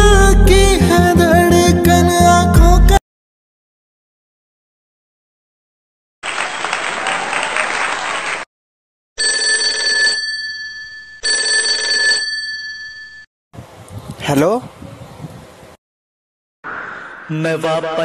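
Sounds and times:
dense noise like applause: 0:06.2 - 0:08.4
telephone ringing: 0:09.2 - 0:13.3.

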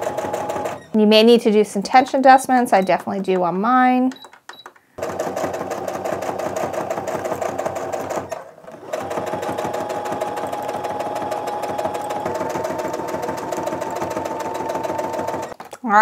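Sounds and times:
sewing machine stitching: 0:00.0 - 0:01.0, 0:05.0 - 0:15.6.

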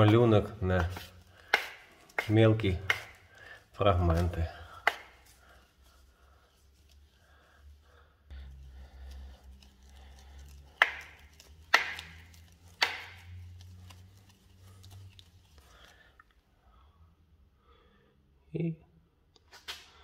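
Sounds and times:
trowel scraping over plaster: 0:00.0 - 0:04.5.

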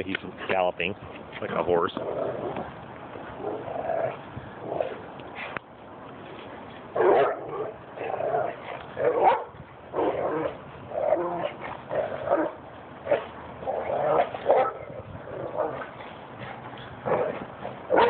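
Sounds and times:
dogs barking and yipping: 0:06.9 - 0:18.0.

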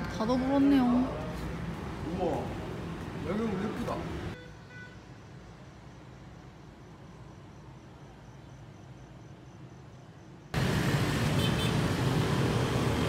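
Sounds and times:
distant traffic hum: 0:00.0 - 0:13.0.

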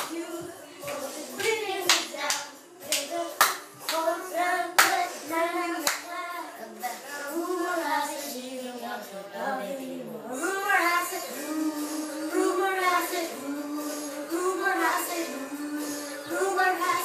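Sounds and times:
children singing: 0:00.0 - 0:17.0
sharp hand claps: 0:00.9 - 0:04.0, 0:04.8 - 0:05.0, 0:05.8 - 0:06.1.

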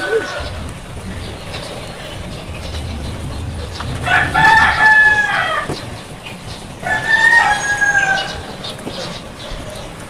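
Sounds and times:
rooster crowing: 0:03.8 - 0:05.8, 0:06.8 - 0:08.5.

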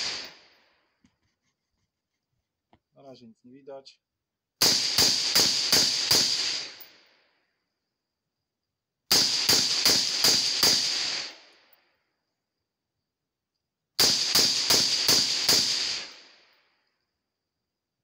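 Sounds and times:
gunshot echo: 0:00.0 - 0:00.6, 0:04.6 - 0:07.1, 0:09.1 - 0:11.6, 0:14.0 - 0:16.5
suppressed rifle shots: 0:04.6 - 0:07.1, 0:09.1 - 0:11.6, 0:14.0 - 0:16.4.

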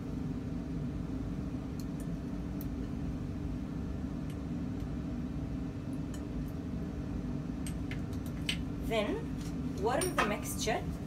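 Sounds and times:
ventilation fan humming: 0:00.0 - 0:11.0.

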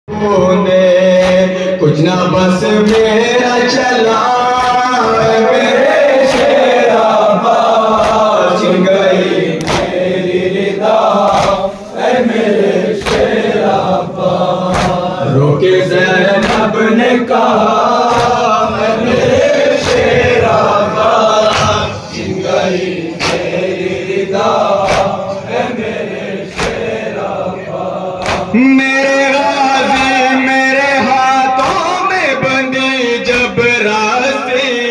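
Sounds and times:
men chanting a slow lament: 0:00.1 - 0:34.9
hand slaps on chest: 0:01.2 - 0:01.4, 0:07.9 - 0:08.4, 0:09.6 - 0:10.0, 0:11.3 - 0:11.6, 0:13.0 - 0:13.3, 0:14.7 - 0:15.1, 0:16.4 - 0:16.7, 0:18.1 - 0:18.4, 0:19.8 - 0:20.1, 0:21.5 - 0:21.8, 0:23.2 - 0:23.6, 0:24.8 - 0:25.2, 0:26.5 - 0:26.9, 0:28.2 - 0:28.5.

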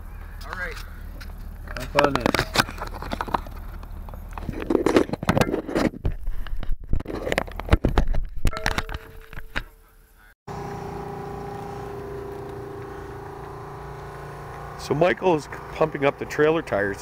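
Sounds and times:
held tones: 0:08.5 - 0:16.3
steady machine hum: 0:08.6 - 0:17.0.

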